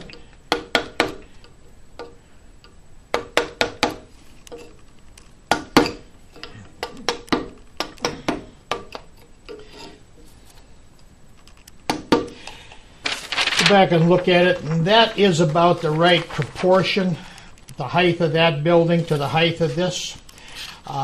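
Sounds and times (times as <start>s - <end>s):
chisel tapping wood: 0.5s - 1.2s, 3.1s - 4.1s, 5.5s - 9.0s.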